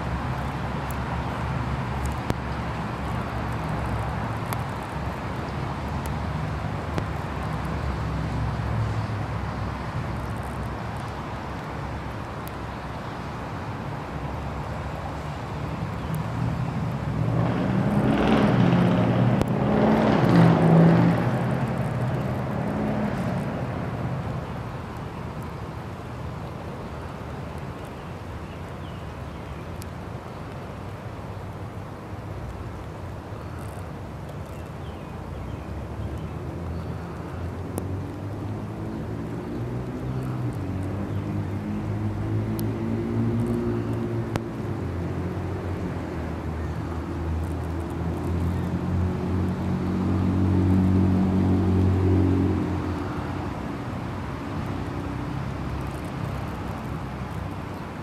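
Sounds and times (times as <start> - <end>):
road traffic rumble: 0.0 - 58.0
vehicle passing: 16.4 - 24.4, 37.7 - 57.6.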